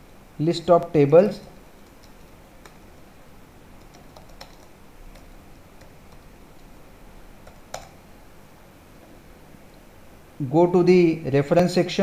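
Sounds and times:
keyboard and mouse clicks: 0:01.8 - 0:02.8, 0:03.8 - 0:06.7, 0:07.4 - 0:08.0.

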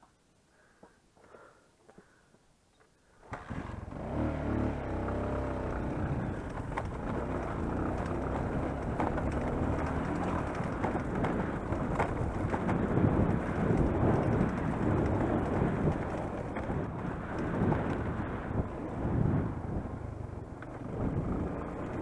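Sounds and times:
dirt bike engine: 0:03.2 - 0:22.0.

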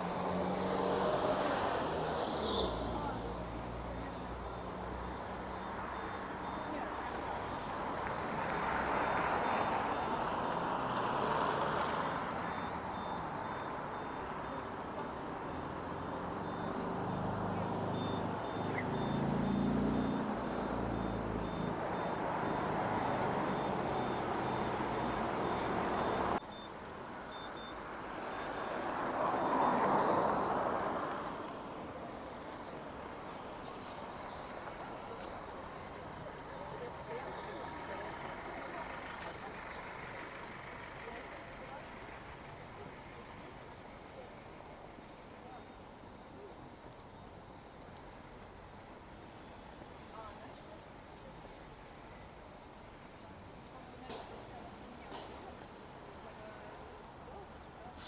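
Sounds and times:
cars passing: 0:00.0 - 0:51.8
heavy engine rumbling: 0:35.0 - 0:43.6.

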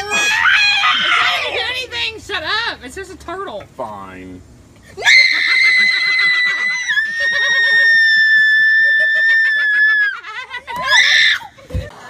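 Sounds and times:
woman screaming: 0:00.0 - 0:01.6, 0:05.0 - 0:11.5.

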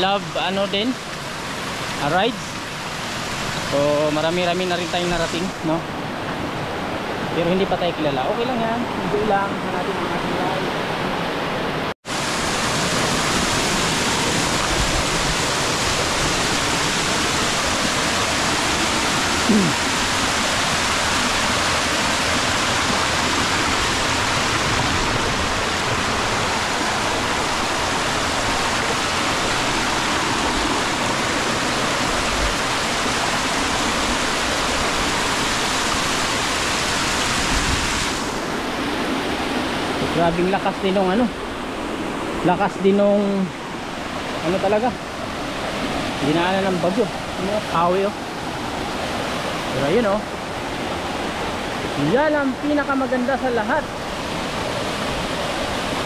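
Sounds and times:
waterfall rushing over boulders: 0:00.0 - 0:56.0.

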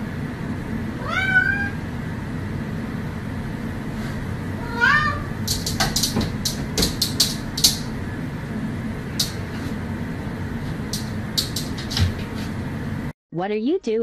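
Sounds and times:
low room hum: 0:00.0 - 0:14.0
cat claws tapping on glass: 0:05.4 - 0:08.0, 0:10.9 - 0:12.3.

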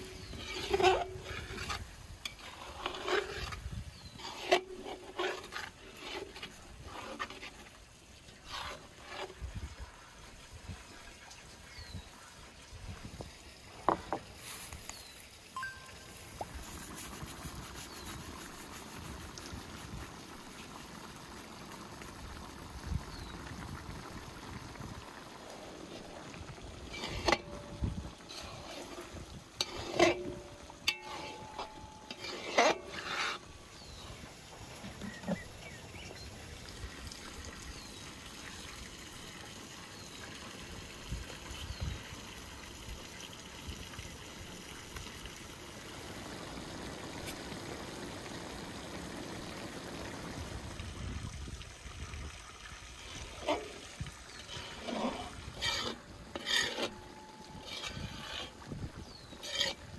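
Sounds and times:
metal spatula scraping a pan: 0:00.0 - 0:07.8, 0:08.4 - 0:09.4, 0:26.8 - 0:34.0, 0:53.4 - 0:59.9
watery trickling hiss: 0:00.0 - 0:59.9.

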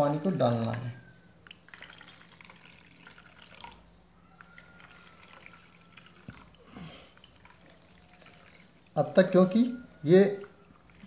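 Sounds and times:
water drips and splashes: 0:00.7 - 0:09.1
water pouring into plastic box: 0:00.7 - 0:09.1.

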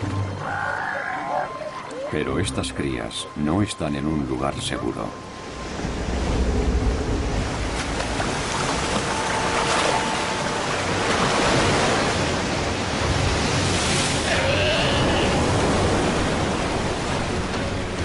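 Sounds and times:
waves breaking in surf: 0:05.2 - 0:18.0.

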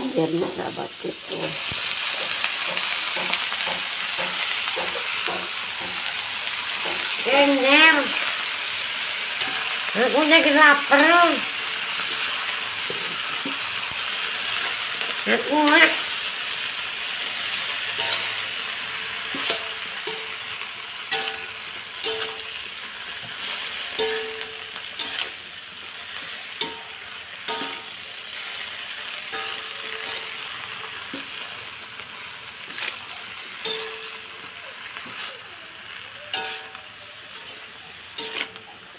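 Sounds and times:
vegetables sizzling in a wok: 0:00.0 - 0:38.9
metal spatula clinking against wok: 0:09.4 - 0:09.9, 0:18.0 - 0:18.6, 0:19.3 - 0:22.6, 0:23.9 - 0:25.4, 0:26.6 - 0:28.0, 0:29.3 - 0:31.4, 0:33.6 - 0:34.3, 0:36.2 - 0:38.9.

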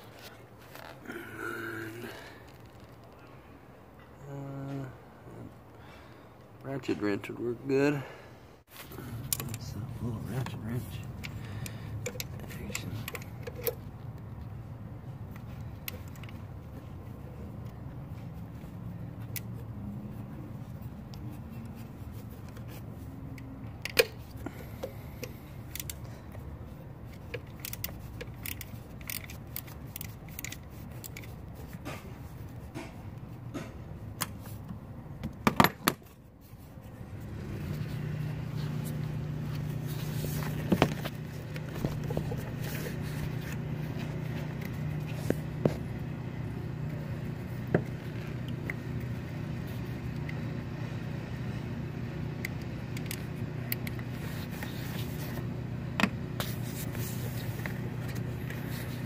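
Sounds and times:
steady low hum: 0:00.0 - 0:59.0
ratchet wrench clicking: 0:23.4 - 0:26.4, 0:27.0 - 0:31.4.

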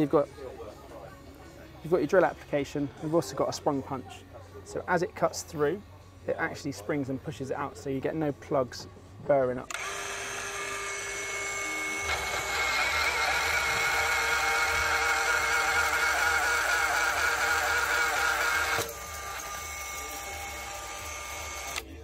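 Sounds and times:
magnetic drill motor whining: 0:09.7 - 0:22.0.

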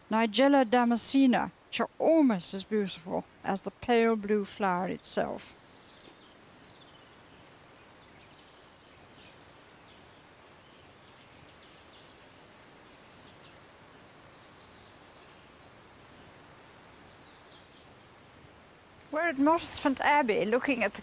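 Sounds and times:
high-pitched whine and hiss: 0:00.0 - 0:21.0
small birds chirping: 0:02.4 - 0:13.7, 0:14.5 - 0:18.0.

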